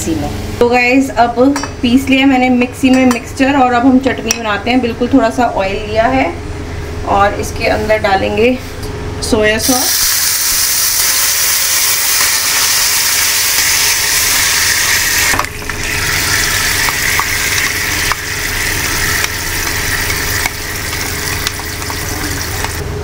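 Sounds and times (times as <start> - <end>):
sauce sizzling in hot oil: 9.6 - 22.8.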